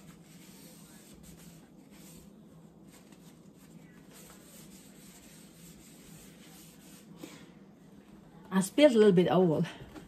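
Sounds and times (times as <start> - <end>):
faint low hum: 0.0 - 10.0.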